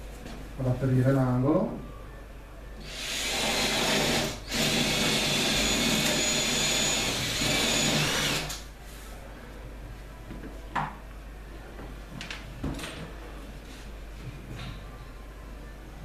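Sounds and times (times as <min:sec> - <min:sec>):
cordless drill boring through worktop: 0:02.8 - 0:08.6.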